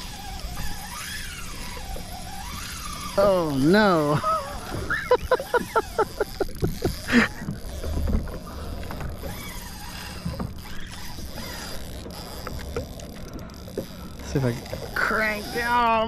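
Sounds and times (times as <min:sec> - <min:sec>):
water lapping against hull: 0:00.0 - 0:16.0.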